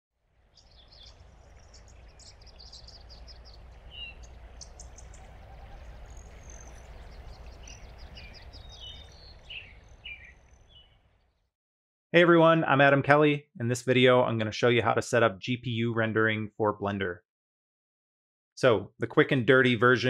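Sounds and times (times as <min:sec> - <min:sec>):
small birds chirping: 0:00.4 - 0:11.5
low rumble: 0:00.6 - 0:11.2.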